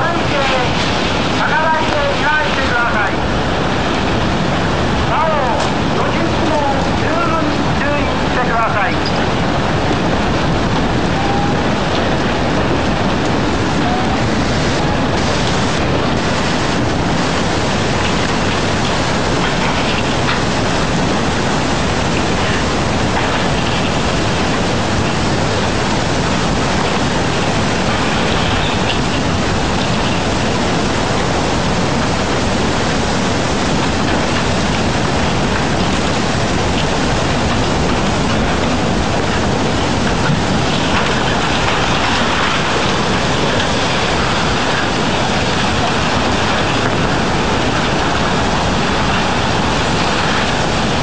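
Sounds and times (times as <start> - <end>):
floodwater rushing: 0.0 - 51.0.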